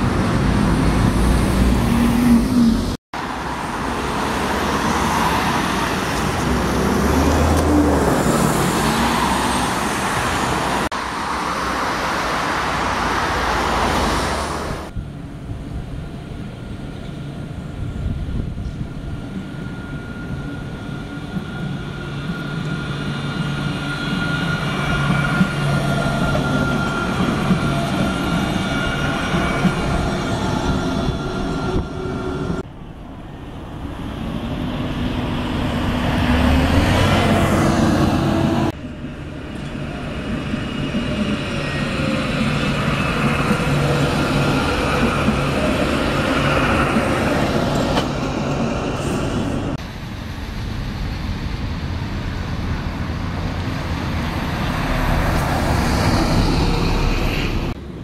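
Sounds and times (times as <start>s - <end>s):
cars and lorries passing: 0.0s - 58.0s
tram whining along track: 0.0s - 58.0s.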